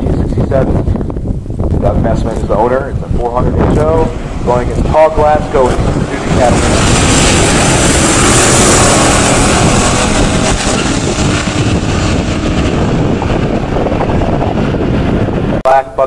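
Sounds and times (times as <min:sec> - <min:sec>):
cars racing at full throttle: 0:03.2 - 0:15.6.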